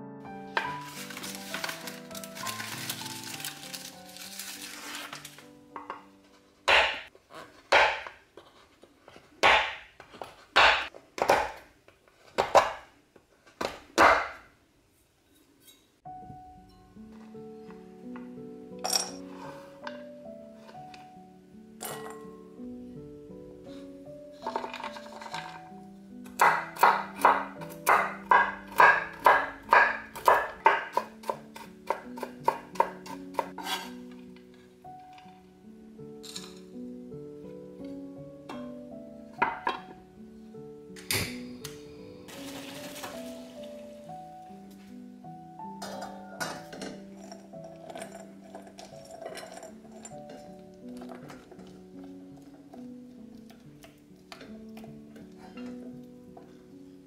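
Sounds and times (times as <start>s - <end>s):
knife chopping nuts on wooden board: 7.7s - 8.2s, 9.4s - 11.7s, 12.4s - 12.9s.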